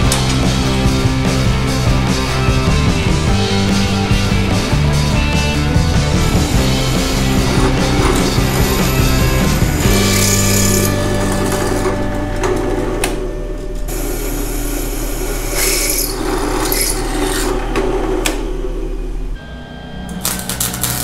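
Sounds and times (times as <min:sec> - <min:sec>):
drill press motor hum: 0:05.9 - 0:13.2, 0:13.8 - 0:19.4
drill bit cutting metal: 0:06.2 - 0:11.8, 0:13.9 - 0:17.7.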